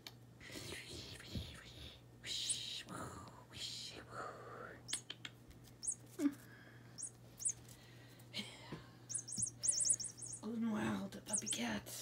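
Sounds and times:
electronic bird chirps: 5.8s - 6.0s, 7.0s - 7.6s, 9.1s - 10.5s, 11.3s - 11.7s.

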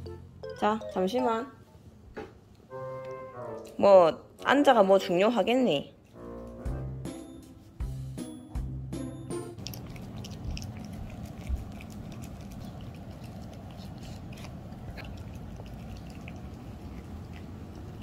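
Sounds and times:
puppy chewing and licking: 9.3s - 18.0s.

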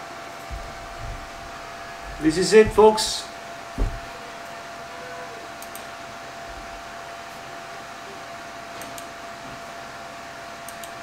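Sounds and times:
computer fan whir: 0.0s - 11.0s
faint clicks: 10.7s - 11.0s.

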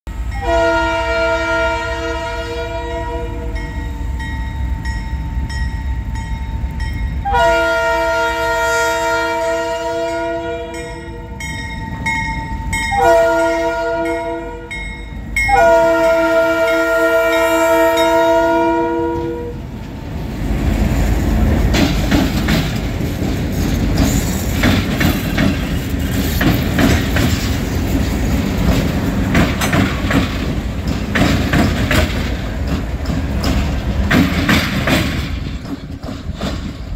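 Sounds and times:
diesel locomotive engines rumbling: 0.1s - 36.9s
locomotive air horn: 0.2s - 3.8s, 7.2s - 11.4s, 12.9s - 14.8s, 15.5s - 19.6s
wheels clicking over rail joints: 19.2s - 36.9s.

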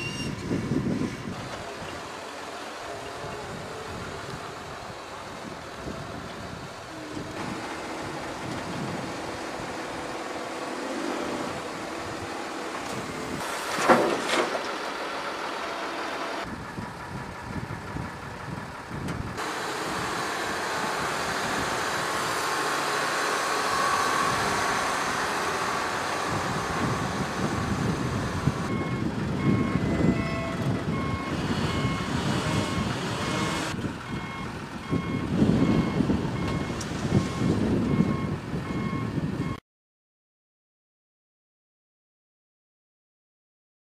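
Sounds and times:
reversing alarm beeping: 0.0s - 0.4s, 28.6s - 39.6s
heavy diesel machinery engines: 0.0s - 39.6s
soil being dumped: 12.6s - 15.1s.

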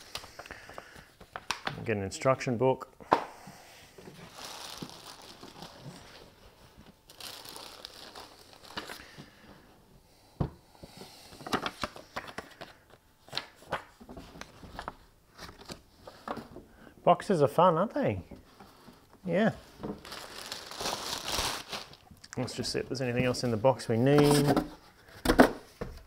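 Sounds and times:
plastic bag crinkling: 4.2s - 9.2s, 19.9s - 22.3s.

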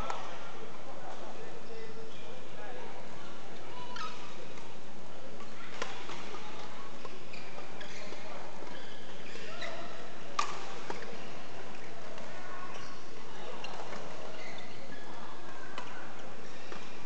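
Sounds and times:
busy sports hall noise: 0.0s - 17.0s
shoe squeaks on court: 7.0s - 10.0s, 13.6s - 15.2s
racket hitting shuttlecock: 10.4s - 11.1s.

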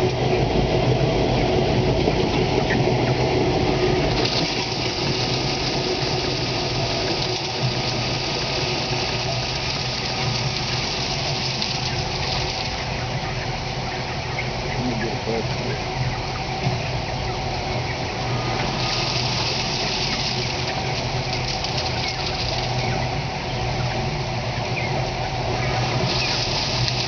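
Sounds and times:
feed machinery humming: 0.0s - 27.0s
feed pouring into bin: 4.1s - 12.8s, 18.4s - 22.8s, 25.7s - 27.0s.

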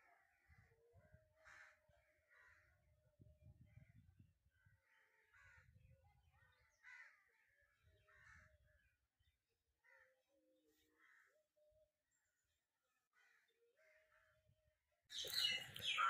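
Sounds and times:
crows cawing: 1.4s - 2.7s, 6.8s - 7.3s, 8.1s - 8.5s, 13.1s - 13.5s.

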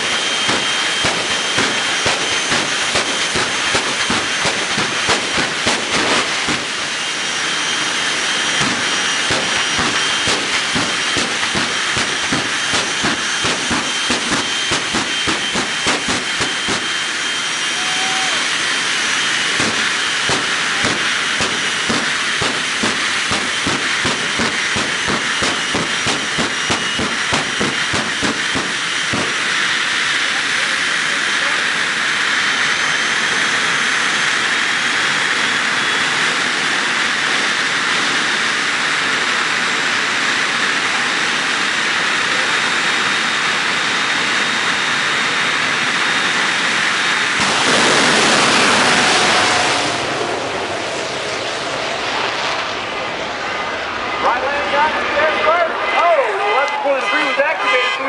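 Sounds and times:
jet engines roaring: 0.0s - 58.0s.

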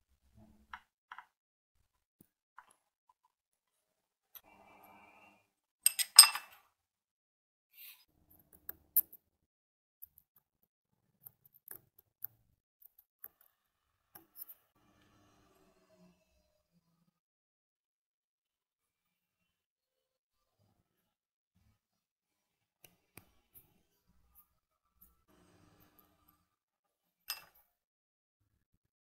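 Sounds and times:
metal tools scraping metal housing: 5.9s - 6.6s.

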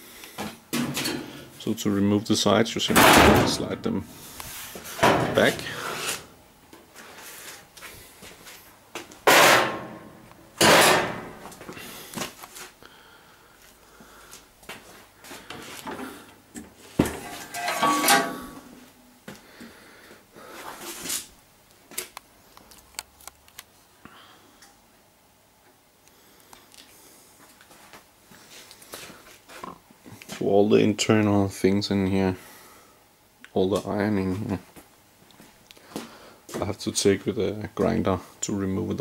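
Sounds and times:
panels sliding and scraping: 2.9s - 6.4s, 9.3s - 11.7s, 15.5s - 18.9s
rattling scrape with ring: 17.2s - 18.6s.

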